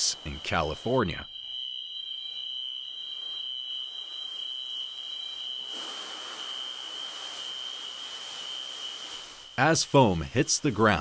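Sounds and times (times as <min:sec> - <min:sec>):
high-pitched fire alarm tone: 0:00.3 - 0:09.6
rushing hiss of pouring foam: 0:05.6 - 0:11.0.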